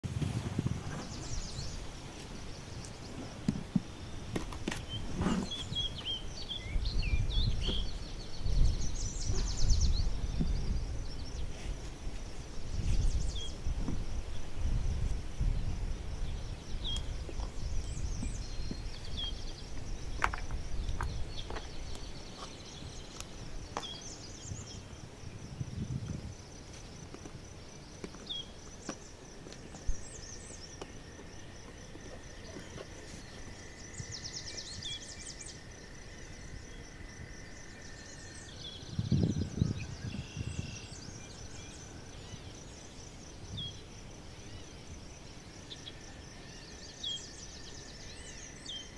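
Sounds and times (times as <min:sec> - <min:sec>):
wind gusts on microphone: 0:00.0 - 0:27.6, 0:31.5 - 0:44.3
birds chirping: 0:00.6 - 0:14.5, 0:15.6 - 0:25.5, 0:26.2 - 0:35.8.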